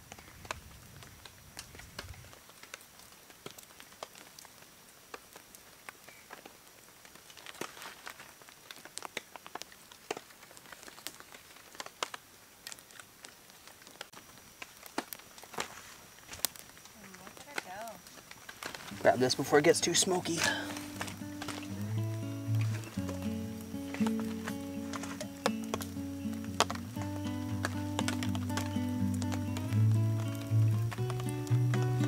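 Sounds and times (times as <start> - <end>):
campfire crackling and popping: 0.0 - 32.0.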